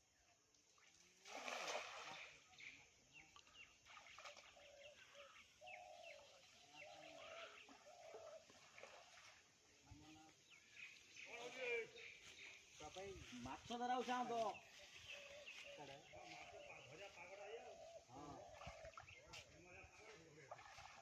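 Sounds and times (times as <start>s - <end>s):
faint birdsong chirps: 0.0s - 21.0s
water splash: 1.1s - 2.4s, 20.4s - 21.0s.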